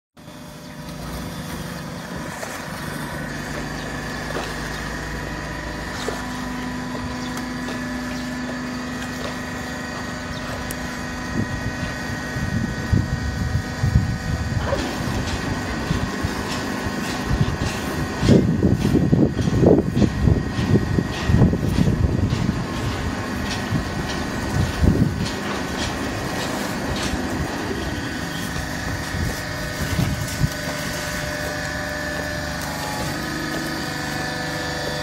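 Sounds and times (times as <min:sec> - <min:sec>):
baler machine hum: 0:00.2 - 0:35.0
low thumps and rattles: 0:14.9 - 0:27.6.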